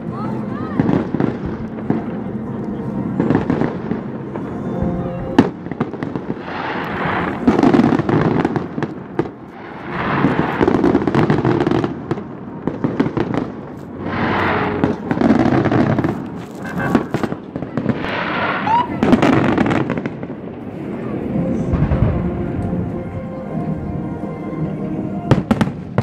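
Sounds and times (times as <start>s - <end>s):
fireworks popping and crackling: 0.0s - 23.3s, 25.2s - 26.0s
firework bang: 5.4s - 20.6s, 21.7s - 22.5s.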